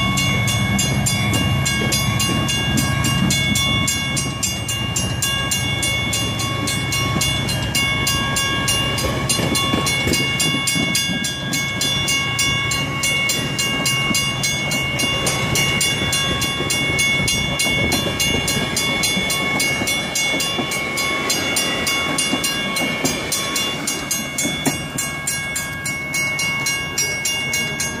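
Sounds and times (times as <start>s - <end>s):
high-pitched wheel ringing: 0.0s - 28.0s
train cars rolling past: 0.0s - 28.0s.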